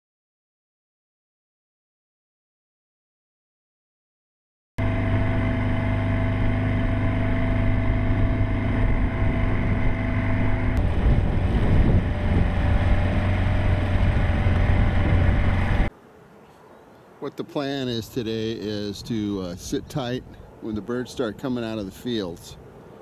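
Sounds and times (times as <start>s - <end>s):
outboard motor running: 4.8s - 15.9s.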